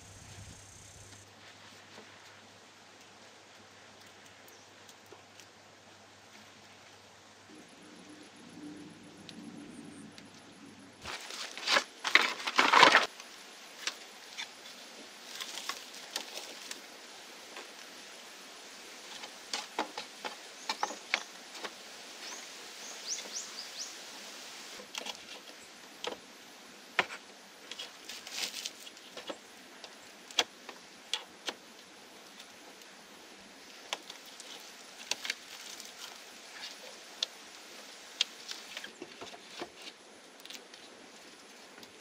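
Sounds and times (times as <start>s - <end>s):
bamboo poles clattering: 11.0s - 13.1s, 15.3s - 16.8s.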